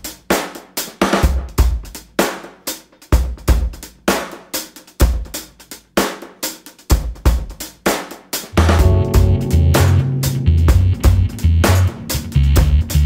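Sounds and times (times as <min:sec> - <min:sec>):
drum kit beat: 0:00.0 - 0:13.0
heavy low thumps: 0:08.6 - 0:13.0.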